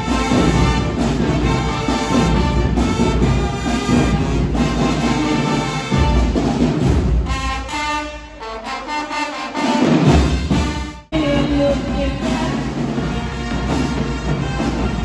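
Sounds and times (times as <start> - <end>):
brass band music with drums: 0.0 - 15.0.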